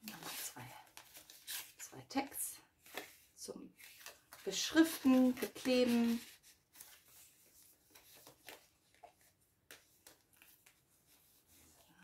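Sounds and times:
paper rustling: 0:02.8 - 0:12.0.

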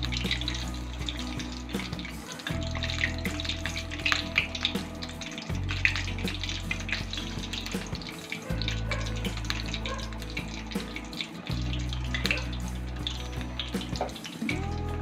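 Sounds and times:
chicken deep-frying in oil: 0:00.0 - 0:15.0.

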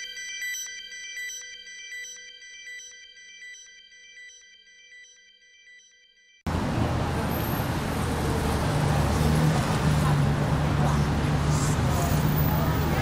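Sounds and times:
vehicle engine hum: 0:06.5 - 0:13.0.

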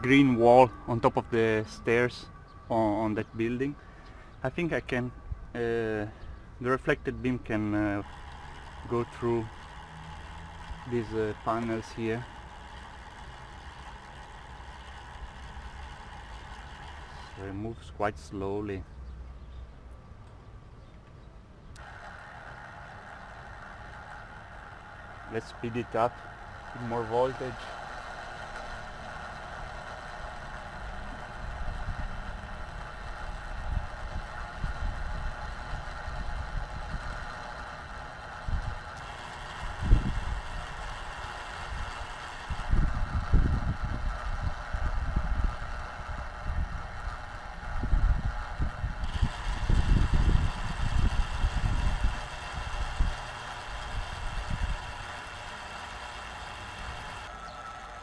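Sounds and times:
gearmotors whining: 0:00.0 - 0:17.8, 0:21.8 - 0:58.0
wind buffeting microphone: 0:39.6 - 0:55.1.

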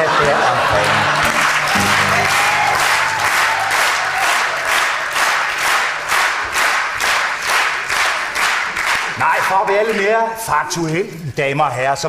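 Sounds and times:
studio audience applauding: 0:00.0 - 0:10.0
acoustic guitar chord: 0:00.7 - 0:04.6.

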